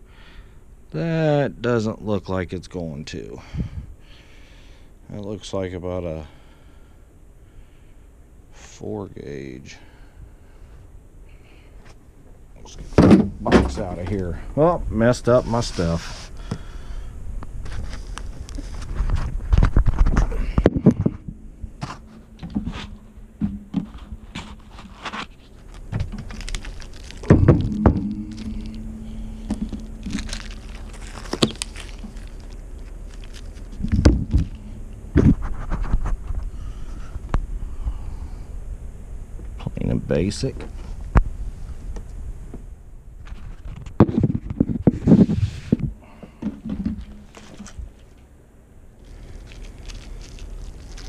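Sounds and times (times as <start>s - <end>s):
faint low hum: 0.0s - 51.0s
low rumble: 16.4s - 39.7s
packaging rustling: 23.6s - 36.4s, 49.0s - 51.0s.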